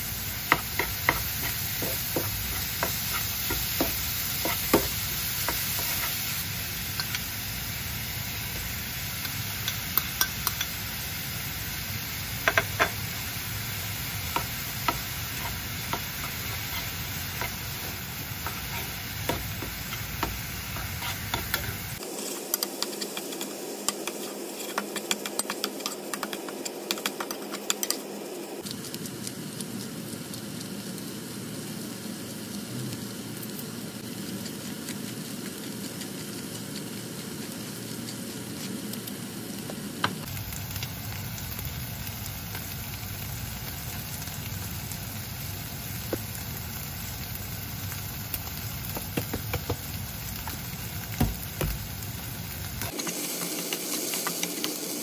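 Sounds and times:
food sizzling in a frying pan: 0.0s - 55.0s
spatula scraping a pan: 0.5s - 6.3s, 14.3s - 28.0s.

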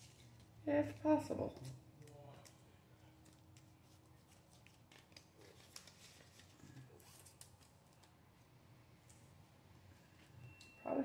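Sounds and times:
paper rustling: 2.4s - 8.2s.

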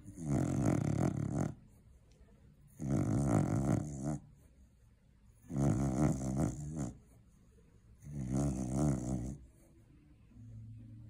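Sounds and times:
dog snoring loudly: 0.0s - 1.6s, 2.8s - 4.3s, 5.4s - 7.0s, 8.0s - 9.5s.

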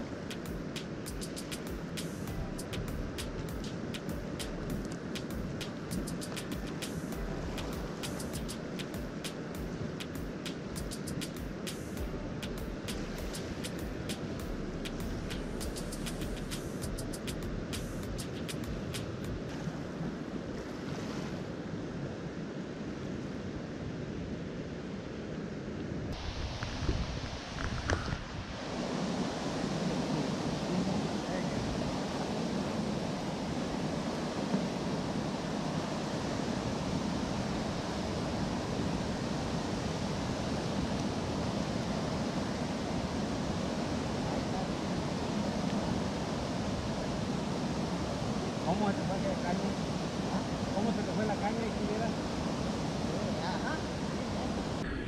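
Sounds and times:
fast-flowing river: 0.0s - 55.0s
wind rumbling on microphone: 1.8s - 55.0s
water rushing over dam: 26.1s - 55.0s.

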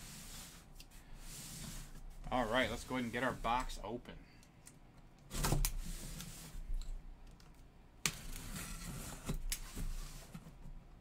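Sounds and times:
cardboard scraping and rustling: 8.2s - 10.6s.

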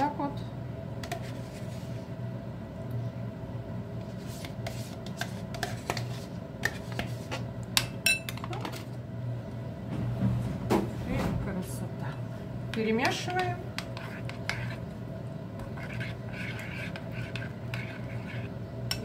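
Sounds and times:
steady low hum: 0.0s - 19.0s
metal spoon clinking on bowl: 8.0s - 8.5s.

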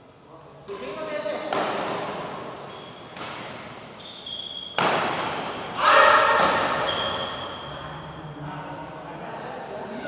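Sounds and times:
racket hitting shuttlecock: 1.5s - 2.4s, 3.1s - 3.8s, 4.6s - 7.4s
shoe squeaks on court floor: 2.5s - 4.9s, 6.6s - 7.9s
player shouting: 5.8s - 6.4s.

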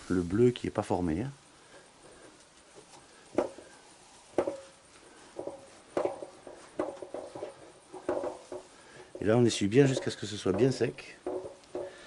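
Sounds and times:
sharp knocks on thin metal: 3.4s - 3.6s, 4.3s - 4.7s, 5.4s - 12.0s.

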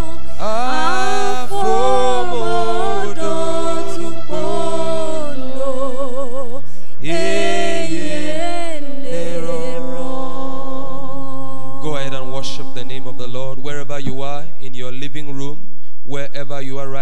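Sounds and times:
man singing into microphone: 0.0s - 5.3s, 11.8s - 14.4s
low hum: 0.0s - 17.0s.

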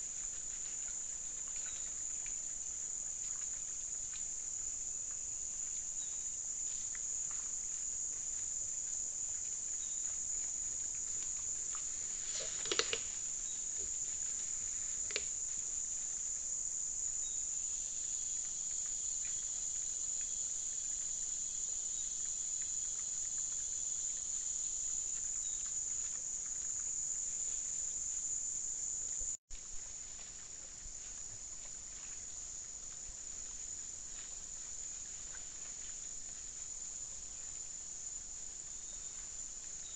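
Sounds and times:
forest insects droning: 0.0s - 39.9s
sharp clicks: 12.4s - 13.1s, 15.0s - 15.3s.

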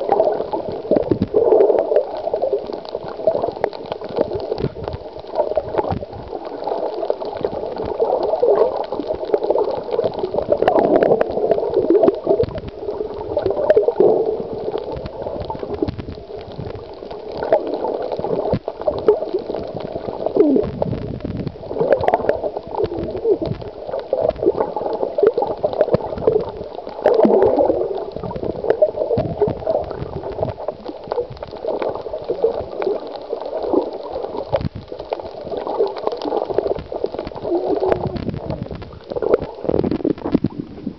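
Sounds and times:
muffled underwater gurgling: 0.0s - 40.9s.

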